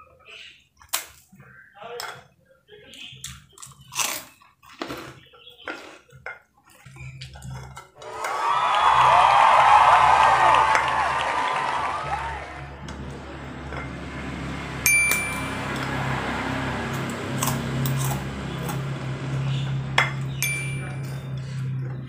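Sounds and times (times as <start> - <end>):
glass plate clinking: 13.6 - 15.9, 19.9 - 21.7.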